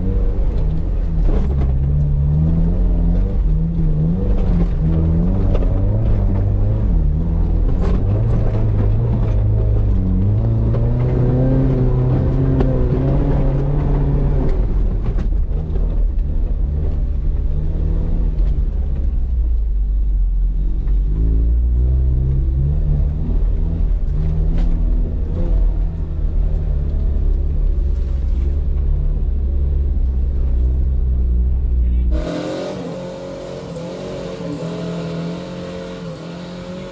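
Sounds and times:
deep rumble: 0:00.0 - 0:32.4
engine revving: 0:31.9 - 0:36.9.

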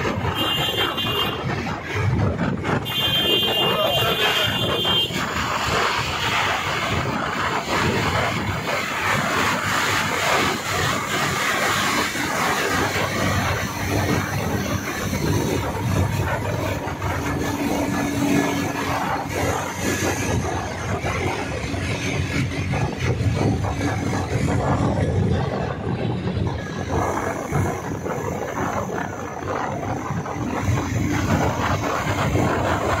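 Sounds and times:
vehicle driving road noise: 0:00.0 - 0:33.0.

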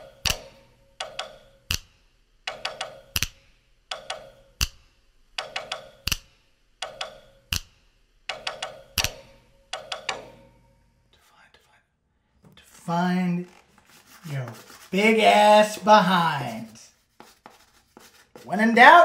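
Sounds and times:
percussive clicking beat: 0:00.2 - 0:10.4.

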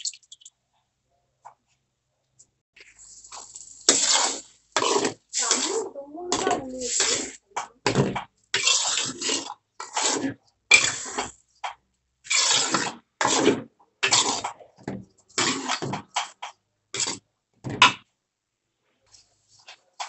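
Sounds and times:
metal ladle scraping a wok: 0:03.3 - 0:05.8.

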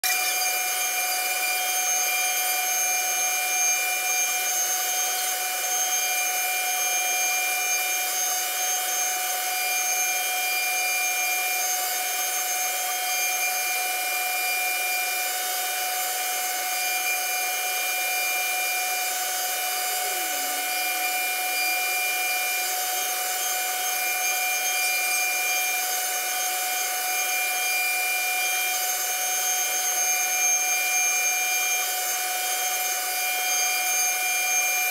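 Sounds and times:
router spindle whine: 0:00.0 - 0:34.9
bit cutting wood hiss: 0:18.2 - 0:22.9.

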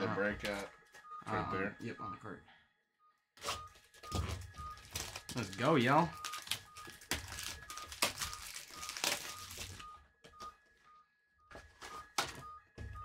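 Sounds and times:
plastic wrap crinkling: 0:03.8 - 0:09.8
packaging tearing: 0:04.8 - 0:05.6, 0:06.2 - 0:09.8.

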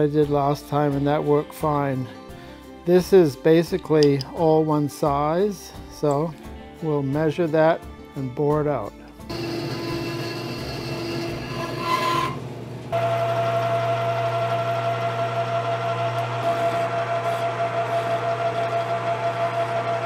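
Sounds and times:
bandsaw cutting metal: 0:09.3 - 0:20.0
metal lathe hum and whine: 0:09.3 - 0:20.0
file rasping on metal: 0:09.4 - 0:12.4, 0:16.2 - 0:20.0.

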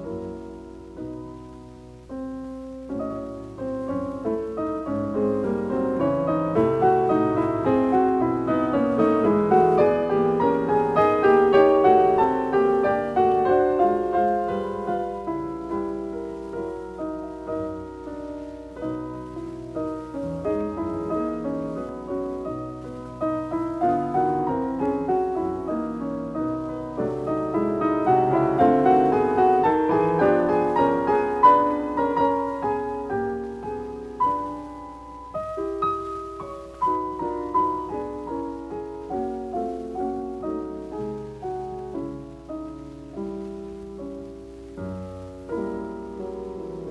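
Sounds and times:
gentle piano music: 0:00.0 - 0:46.9.

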